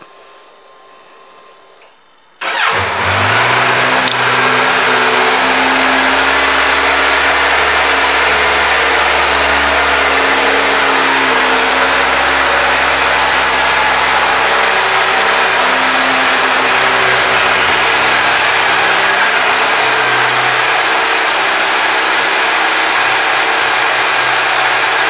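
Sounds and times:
motorcycle engine starting and idling: 0:02.4 - 0:25.0.

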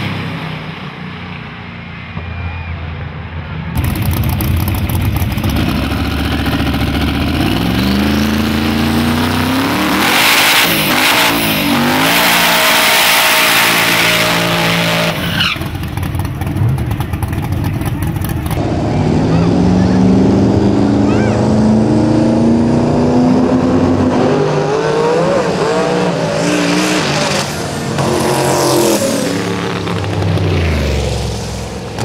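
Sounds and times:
truck engines revving hard: 0:00.0 - 0:32.0
tire spinning and squealing: 0:03.8 - 0:20.0.

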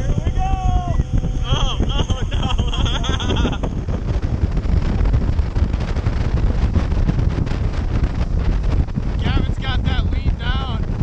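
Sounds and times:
boat engine rushing: 0:00.0 - 0:11.0
churning wake: 0:00.0 - 0:11.0
wind buffeting microphone: 0:00.0 - 0:11.0.

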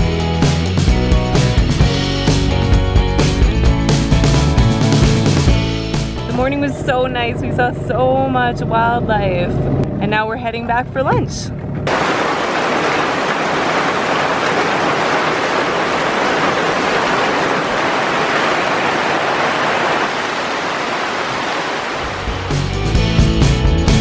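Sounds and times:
heavy rain on river water: 0:11.9 - 0:23.0.

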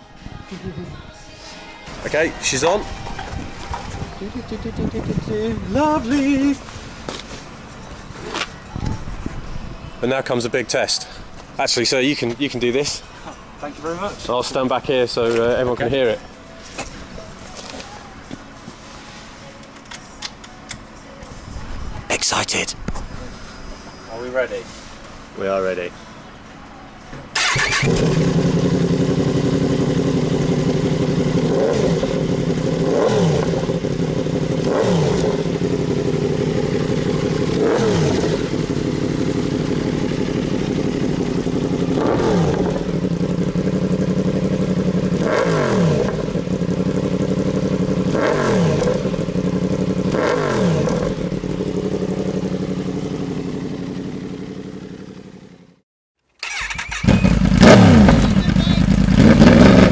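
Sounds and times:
motorcycle engine revving: 0:27.4 - 0:55.6, 0:56.4 - 0:59.9.

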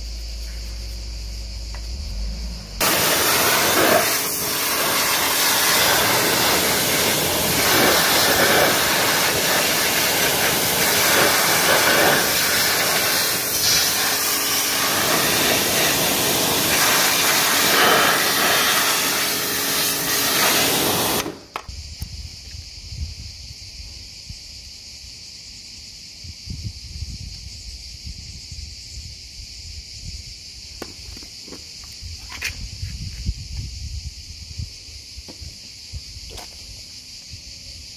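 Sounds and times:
low rumble: 0:00.0 - 0:03.0
pressure washer spraying: 0:02.8 - 0:21.5.

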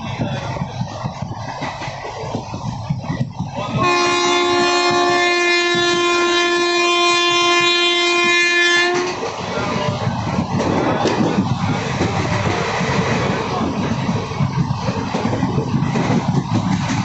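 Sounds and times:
moving train running noise: 0:00.0 - 0:17.0
train horn blast: 0:03.7 - 0:09.3.

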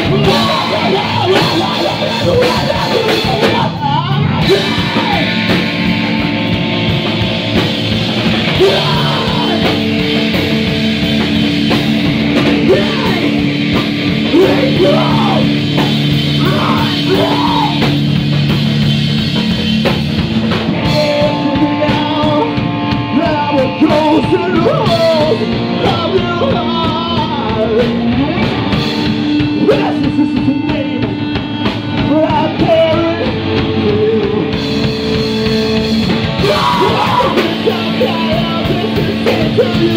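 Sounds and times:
person singing: 0:00.0 - 0:05.9, 0:08.4 - 0:10.6, 0:12.4 - 0:18.0, 0:20.7 - 0:28.6, 0:32.0 - 0:35.2, 0:36.4 - 0:39.9
rock band playing loudly: 0:00.0 - 0:39.9.

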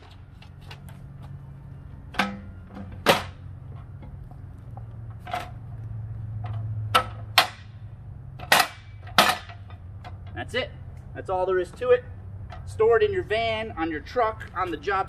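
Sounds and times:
metal frame clacking into place: 0:02.1 - 0:03.4, 0:08.4 - 0:10.3.

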